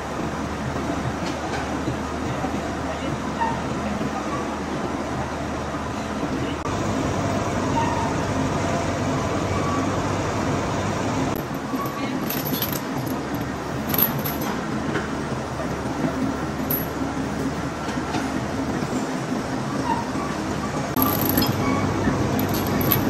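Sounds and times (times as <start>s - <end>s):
machinery clattering: 11.3s - 15.1s, 21.0s - 23.0s
sharp metallic clinks: 11.4s - 14.6s, 21.0s - 21.8s, 22.4s - 23.0s.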